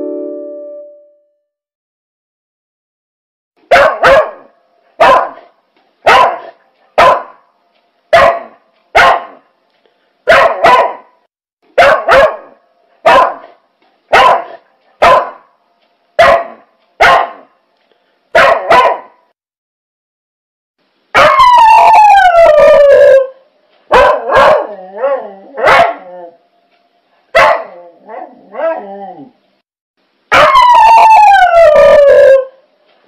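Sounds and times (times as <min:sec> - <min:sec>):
dog barking: 0:03.6 - 0:07.5, 0:08.1 - 0:09.5, 0:10.2 - 0:11.2, 0:11.8 - 0:15.5, 0:16.2 - 0:17.6, 0:18.3 - 0:19.3, 0:21.2 - 0:21.5, 0:23.9 - 0:26.1, 0:27.3 - 0:28.8, 0:30.3 - 0:30.7.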